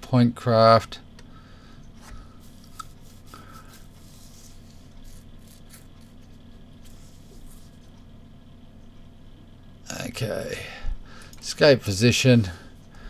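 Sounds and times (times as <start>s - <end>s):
low electrical hum: 0.0s - 13.0s
mouse rubbing on surface: 2.4s - 8.0s.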